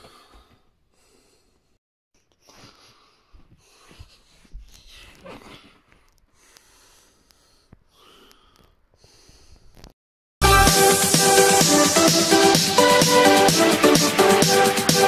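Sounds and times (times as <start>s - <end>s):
person breathing and sniffing: 0.0s - 9.9s.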